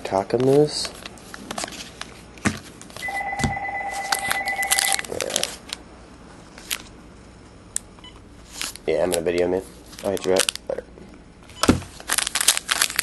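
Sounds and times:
phone ringing with electronic trill: 3.0s - 5.0s
foil card pack crinkling: 3.9s - 5.8s, 8.5s - 10.8s, 11.9s - 13.0s.

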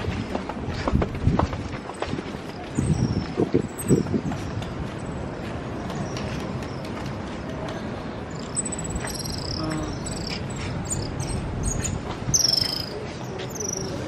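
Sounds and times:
high-pitched animal chirps: 8.5s - 11.1s.

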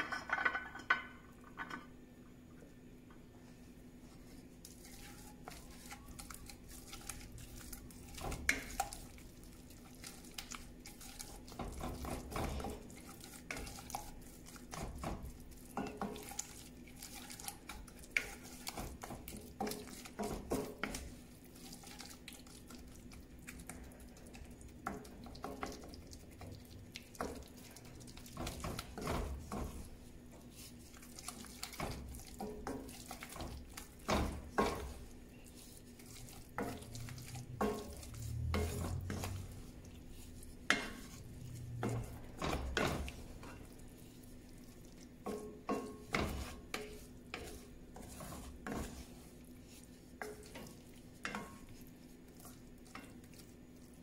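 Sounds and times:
wooden spoon scraping a skillet: 3.5s - 54.0s.

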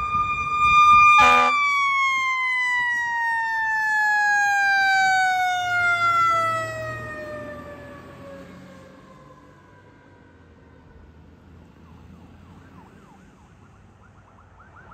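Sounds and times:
fire engine siren: 0.0s - 14.9s
short horn blast: 1.2s - 1.6s.

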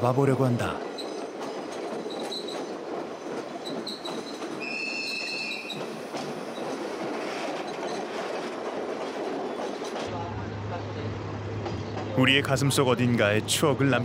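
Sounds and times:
train rumbling on rails: 0.0s - 14.0s
train wheels squealing: 2.0s - 2.7s, 3.6s - 8.1s.

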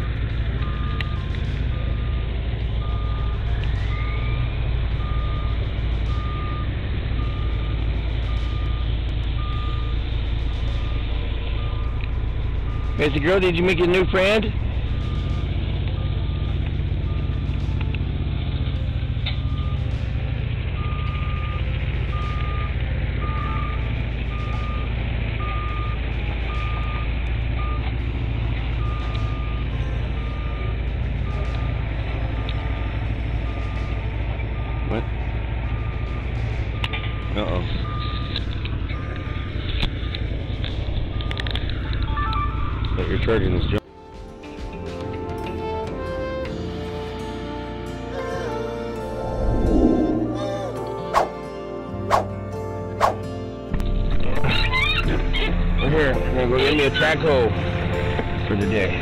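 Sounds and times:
diesel engine running: 0.0s - 59.0s
short rising whine: 49.0s - 51.5s.

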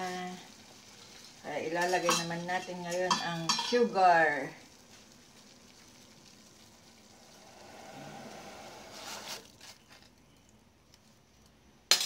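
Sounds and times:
faint simmering water: 0.0s - 11.9s
sugar poured into water hissing: 4.5s - 9.8s.

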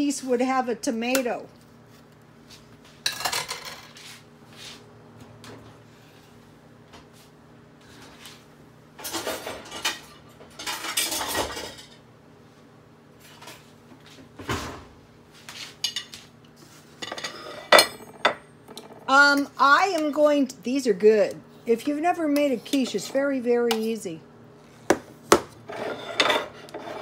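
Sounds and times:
dishes and cutlery clattering: 9.0s - 12.0s.

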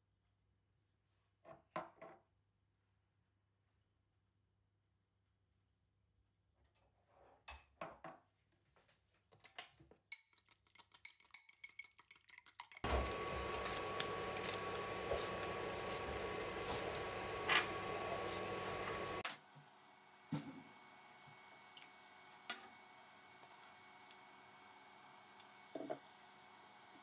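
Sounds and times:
fork whisking egg in glass bowl: 10.1s - 14.8s.

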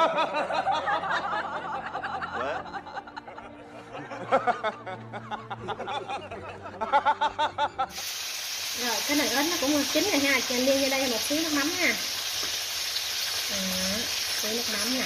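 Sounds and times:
man chuckling and snickering: 0.0s - 7.9s.

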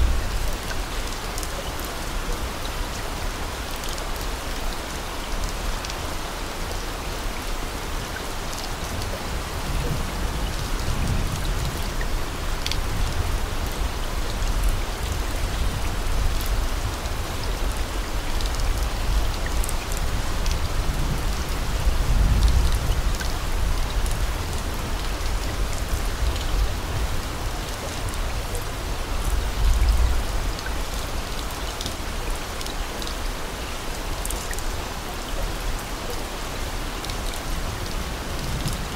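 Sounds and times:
steady rain: 0.0s - 38.9s
raindrop ticks: 31.7s - 32.0s.

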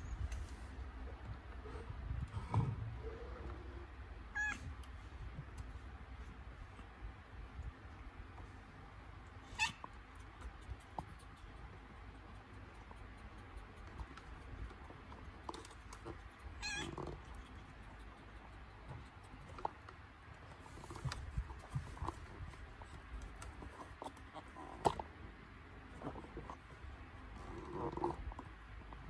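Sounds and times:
cat yowling: 9.5s - 9.8s, 16.6s - 17.0s.

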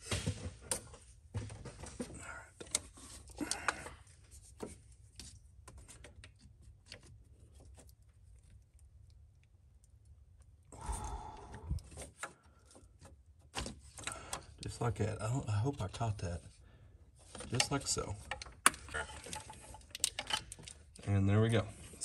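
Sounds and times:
connector scraping and clicking: 17.2s - 21.6s.

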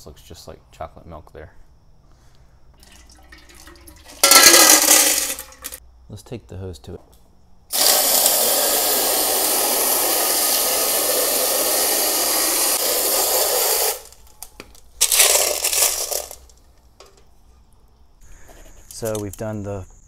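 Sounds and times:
hose nozzle spraying water: 7.7s - 14.3s.

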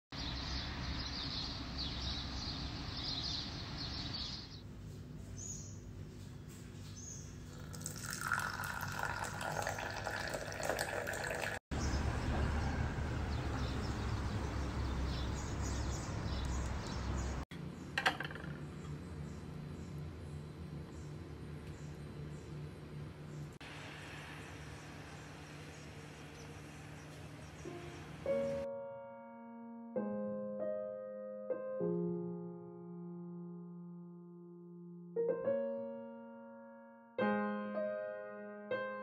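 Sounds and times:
tea pouring into cup: 7.5s - 11.6s.

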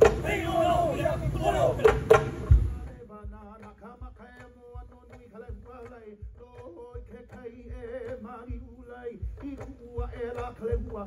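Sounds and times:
slow steady drumbeat: 0.0s - 0.4s, 1.4s - 11.0s
person chanting: 0.0s - 2.1s.

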